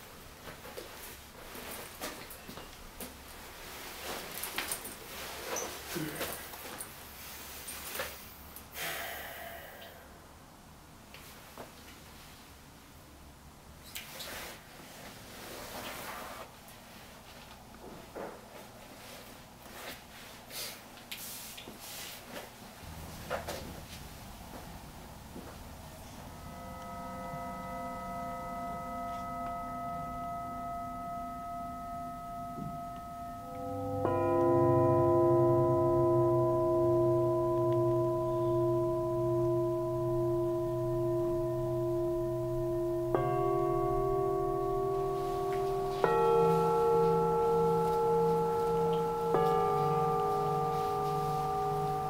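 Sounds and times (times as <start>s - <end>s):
low room hum: 0.0s - 52.0s
bell-like chord ringing: 25.8s - 52.0s
low wavering drone: 25.9s - 52.0s.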